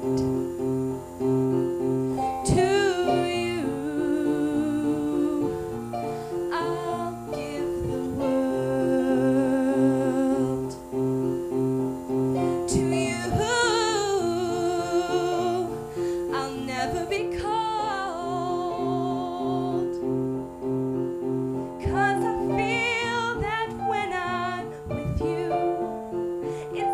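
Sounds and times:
piano chords: 0.0s - 26.9s
woman singing with vibrato: 2.4s - 10.9s, 12.4s - 20.0s, 21.8s - 26.9s.

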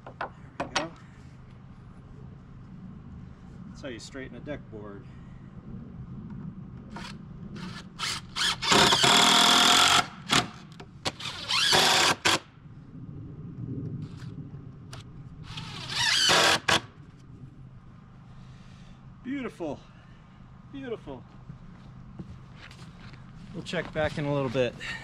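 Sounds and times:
power driver driving screws into wood: 6.9s - 12.4s, 15.6s - 16.8s.

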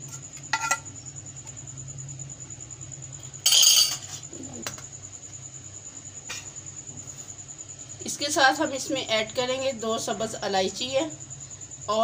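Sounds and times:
metal spoon scraping a pan: 0.0s - 0.9s.

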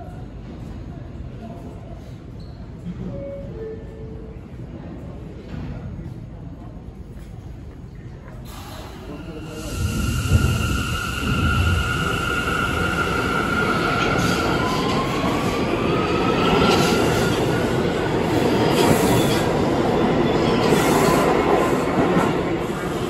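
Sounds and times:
steel wheels rumbling on rail: 8.4s - 23.0s.

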